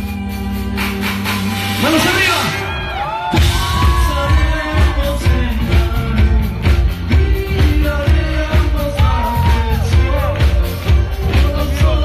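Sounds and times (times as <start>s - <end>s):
live pop-rock band playing: 0.0s - 12.0s
person singing: 3.4s - 12.0s.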